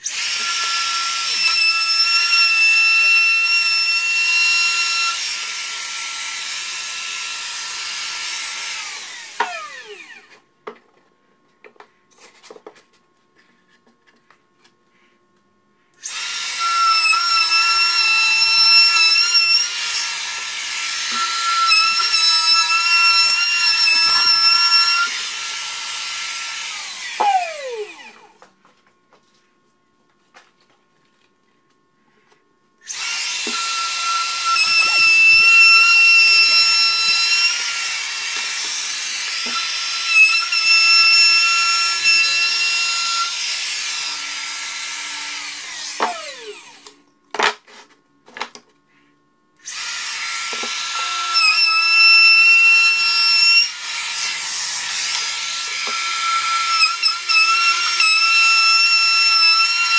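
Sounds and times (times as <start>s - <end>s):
router whining: 0.0s - 10.4s, 16.0s - 28.5s, 32.8s - 47.0s, 49.6s - 59.9s.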